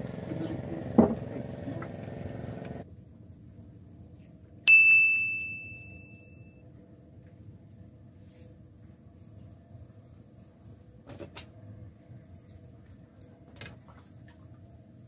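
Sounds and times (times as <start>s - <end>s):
steady engine hum: 0.0s - 2.9s
quiet outdoor background: 0.0s - 15.0s
bright ding: 4.7s - 6.6s.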